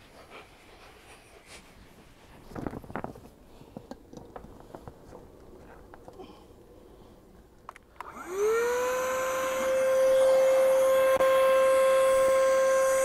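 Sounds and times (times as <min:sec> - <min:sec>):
electric air pump motor hum: 0:08.0 - 0:13.0.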